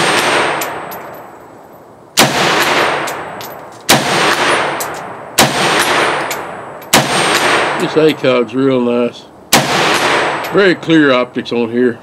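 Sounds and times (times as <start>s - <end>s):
rifle shots with echo: 0.0s - 1.2s, 2.2s - 8.2s, 9.5s - 10.8s.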